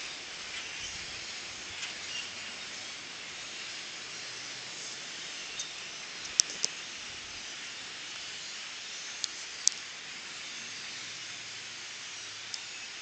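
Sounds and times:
distant flock of birds calling: 0.0 - 8.1.

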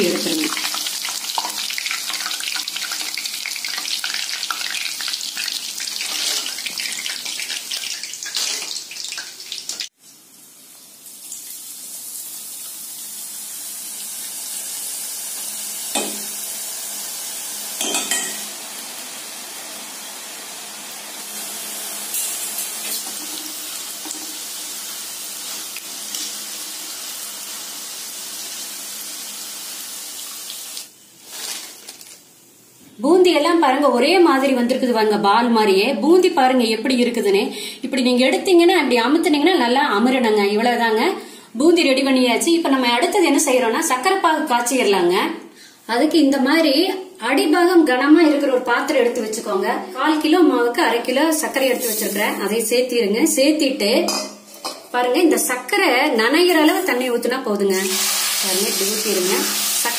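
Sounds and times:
hot oil sizzling: 0.0 - 32.3, 50.9 - 54.7, 55.4 - 59.9.

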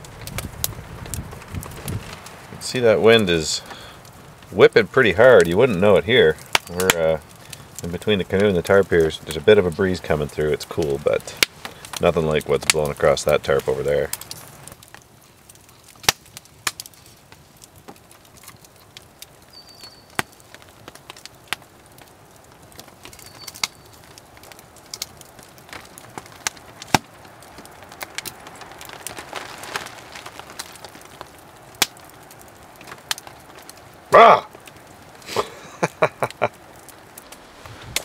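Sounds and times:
campfire crackling and popping: 0.0 - 38.0
soft steady fire hiss: 0.0 - 38.0.

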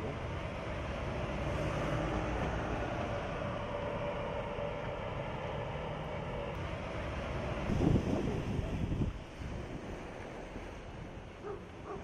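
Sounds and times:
low engine rumble: 0.0 - 12.0
road noise: 0.0 - 12.0.

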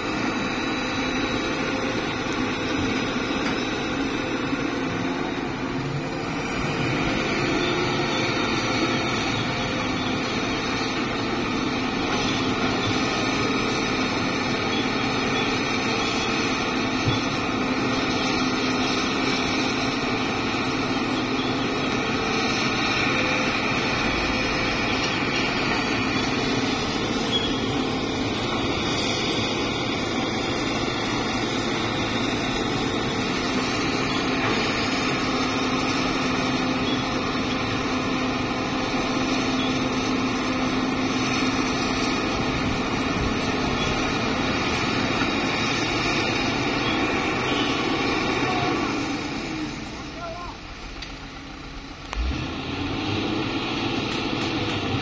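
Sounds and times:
diesel engines droning: 0.0 - 55.0.

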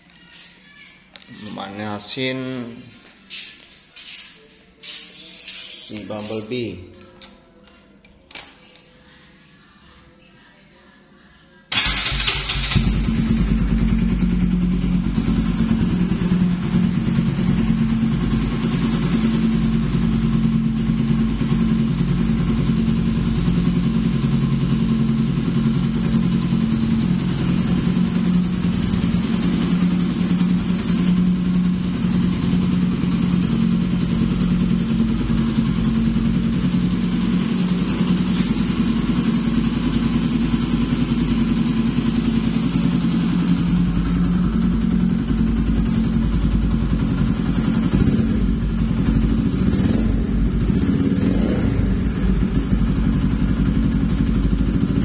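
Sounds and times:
motorcycle engine idling: 11.7 - 55.0.

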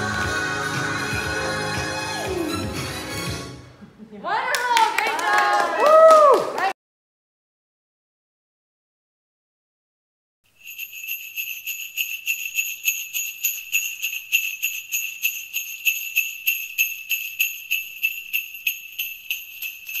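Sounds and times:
sleigh bells jingling: 10.5 - 20.0.

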